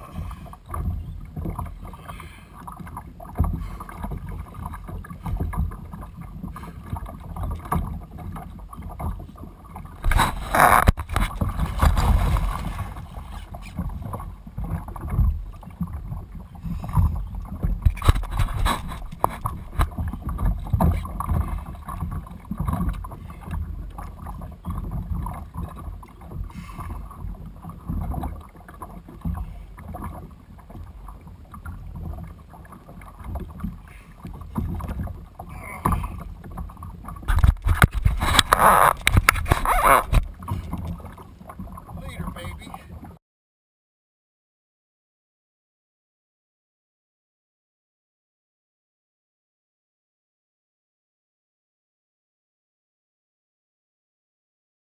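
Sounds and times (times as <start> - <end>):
water lapping at hull: 0.0 - 43.2
fish thrashing and splashing: 9.9 - 16.2, 16.9 - 23.7, 32.9 - 41.8.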